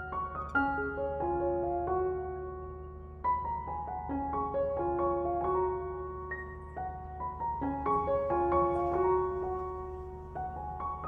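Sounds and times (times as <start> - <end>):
slow piano melody: 0.0 - 11.0.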